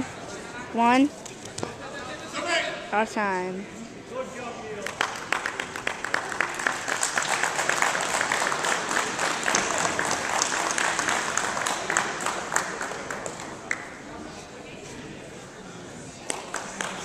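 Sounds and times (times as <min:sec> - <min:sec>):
spectators clapping: 0:04.8 - 0:14.0, 0:16.2 - 0:17.0.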